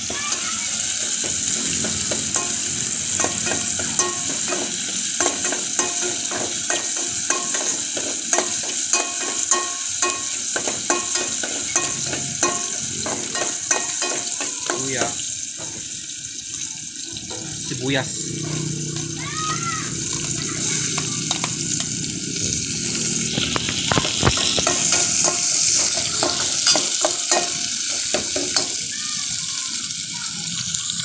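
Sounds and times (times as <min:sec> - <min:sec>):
ginger sizzling in hot oil: 0:00.0 - 0:31.0
metal ladle knocking a pot: 0:01.1 - 0:15.9, 0:23.6 - 0:28.8.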